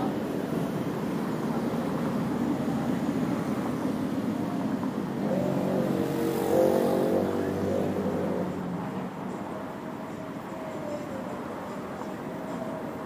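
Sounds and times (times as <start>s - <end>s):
street traffic rumbling: 0.0s - 13.0s
vehicle engine passing: 5.1s - 9.0s.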